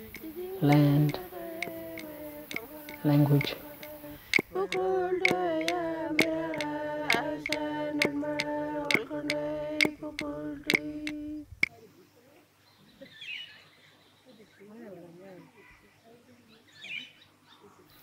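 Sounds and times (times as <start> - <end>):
wooden clapsticks striking: 0.0 - 11.2
women singing: 0.0 - 11.5.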